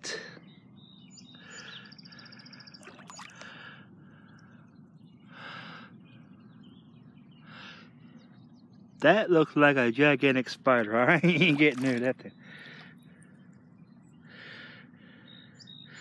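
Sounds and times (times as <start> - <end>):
wading through water: 2.5 - 4.6, 10.7 - 14.7.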